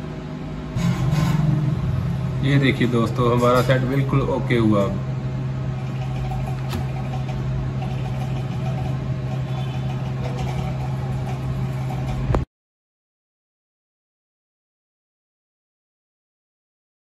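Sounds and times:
low hum: 0.0 - 12.4.

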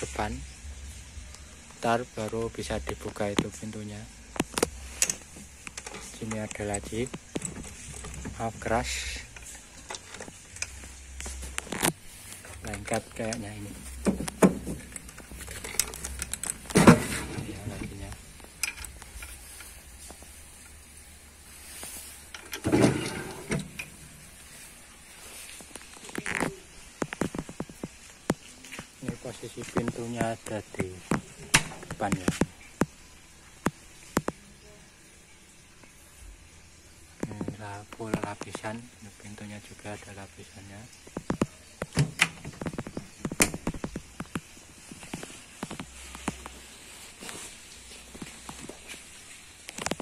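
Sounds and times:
wooden drawer scraping shut: 16.7 - 17.9, 22.6 - 23.8.

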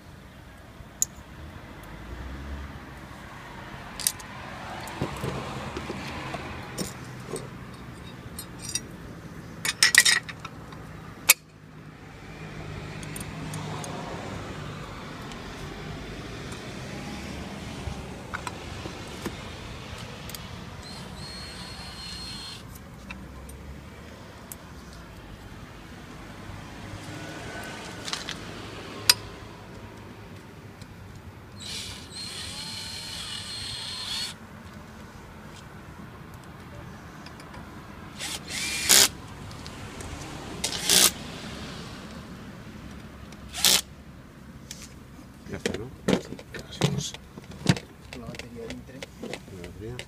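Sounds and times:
cordless drill whining: 20.8 - 22.7, 31.6 - 34.4, 38.2 - 39.1, 43.5 - 43.8.

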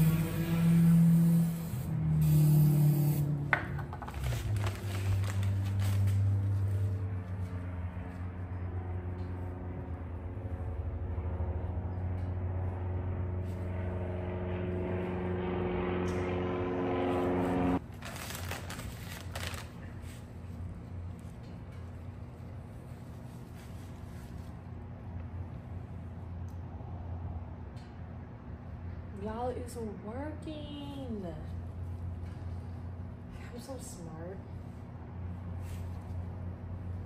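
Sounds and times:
motor hum: 0.0 - 17.8.

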